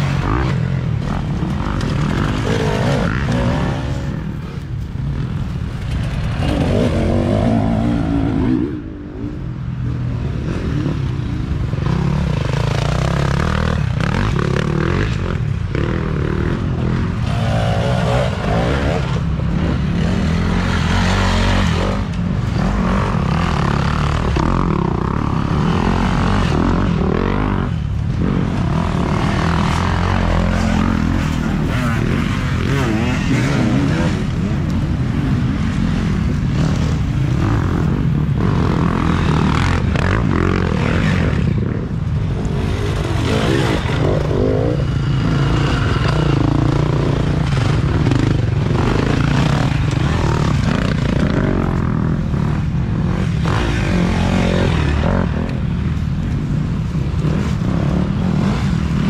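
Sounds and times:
dirt bike engines revving: 0.0s - 59.0s.

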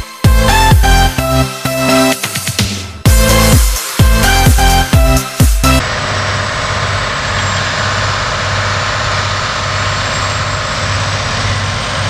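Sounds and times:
tractor diesel engine under load: 5.7s - 12.0s.

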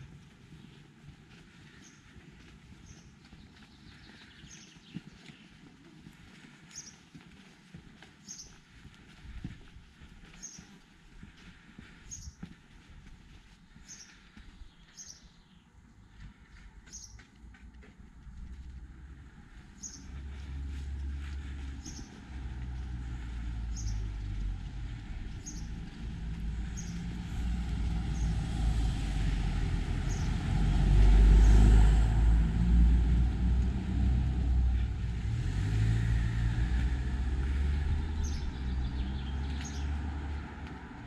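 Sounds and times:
vehicle passing with low rumble: 8.0s - 13.0s, 13.6s - 41.0s.

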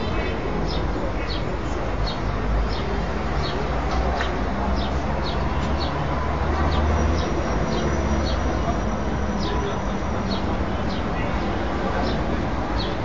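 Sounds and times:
small birds chirping: 12.0s - 13.0s.

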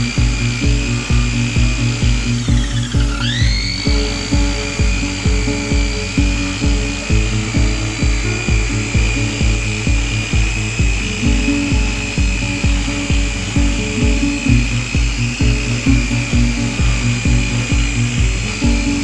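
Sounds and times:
background music with steady beat: 0.0s - 19.0s
electric polisher whining: 0.0s - 19.0s.

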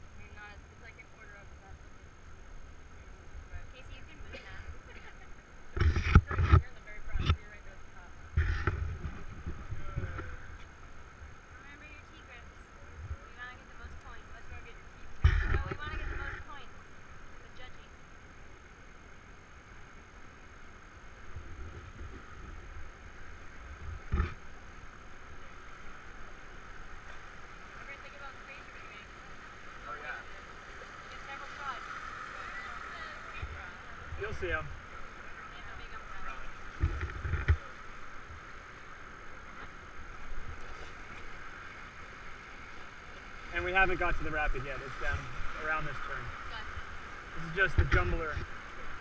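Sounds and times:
low rumbling on microphone: 0.0s - 17.5s, 21.0s - 28.9s
river water rushing: 0.0s - 49.0s.

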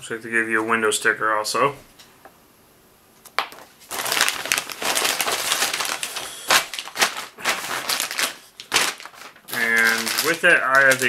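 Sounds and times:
packaging crinkling: 3.3s - 11.0s.

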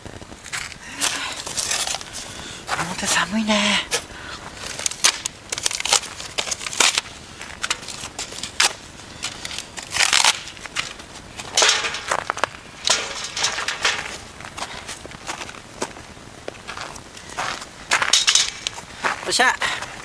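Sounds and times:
crunching on crusted snow: 0.0s - 20.0s
cardboard and wood rustling: 0.3s - 2.4s.

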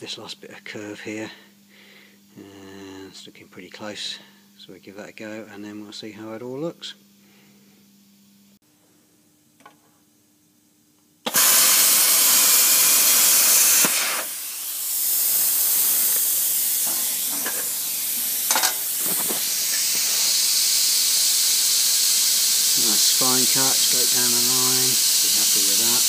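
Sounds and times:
plasma cutter hissing: 11.2s - 26.0s.

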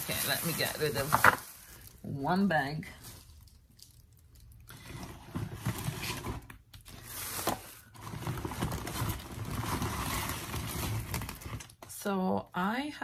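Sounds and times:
shopping bag rustling: 0.0s - 2.0s.

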